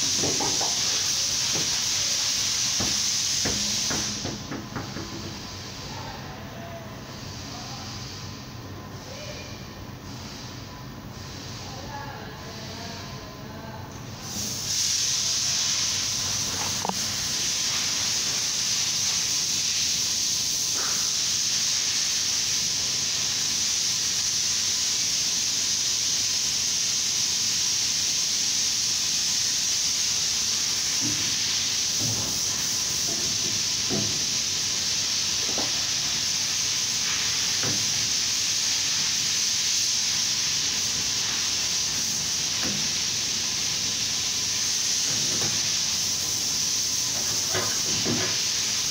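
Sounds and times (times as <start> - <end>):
loud steady hiss: 0.0 - 48.9.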